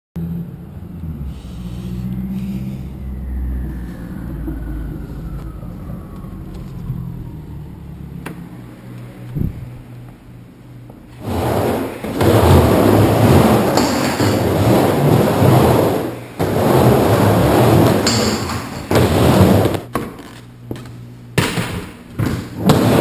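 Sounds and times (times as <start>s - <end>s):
motor vehicle rumble: 0.2s - 19.9s
whine sliding down in pitch: 1.0s - 9.8s.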